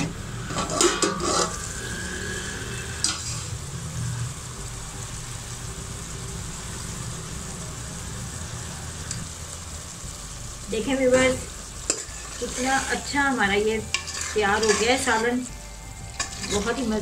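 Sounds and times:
metal pot lid clanking: 0:00.0 - 0:01.6, 0:11.9 - 0:12.8, 0:13.8 - 0:15.3, 0:16.1 - 0:16.8
curry sizzling and bubbling: 0:00.0 - 0:17.0.

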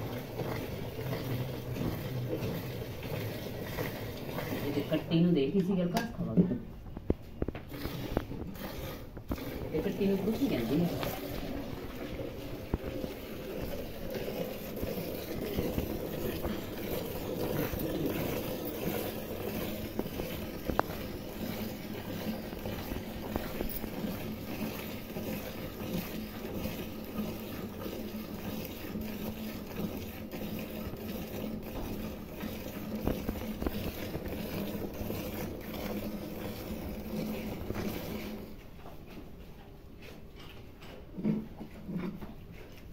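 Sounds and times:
milk squirting into steel bucket: 0:00.0 - 0:06.2, 0:07.0 - 0:38.6.

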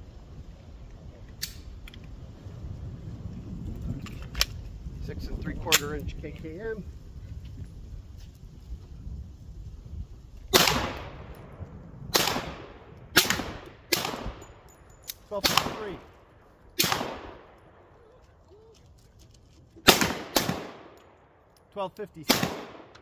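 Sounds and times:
pistol shots echoing: 0:10.5 - 0:11.3, 0:12.1 - 0:14.7, 0:15.4 - 0:16.1, 0:16.8 - 0:17.9, 0:19.8 - 0:21.1, 0:22.2 - 0:23.0.

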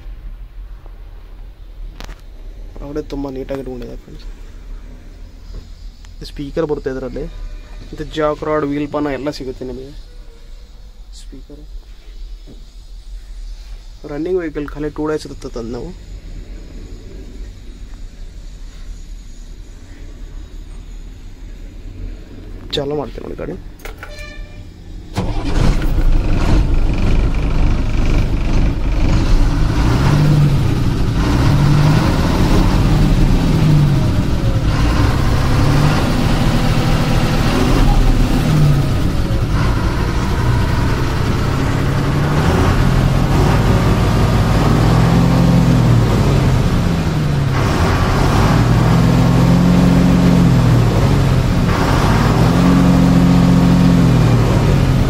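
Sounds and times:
truck diesel engine revving: 0:25.1 - 0:55.0.

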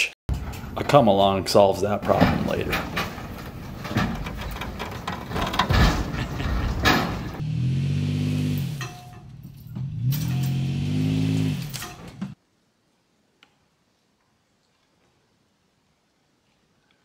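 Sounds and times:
truck rumble: 0:00.3 - 0:12.4
heavy knocks: 0:02.1 - 0:07.4
truck engine revving: 0:02.2 - 0:12.4.

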